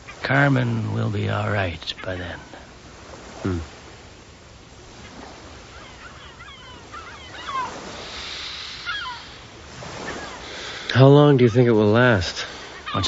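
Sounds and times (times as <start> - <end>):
birds chirping: 0.0 - 13.0
surf washing: 0.0 - 13.0
low vocal sound: 3.4 - 3.7.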